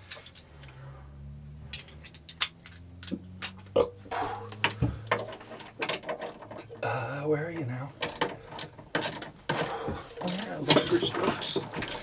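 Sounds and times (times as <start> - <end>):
metal hand tools clicking: 8.0 - 12.0.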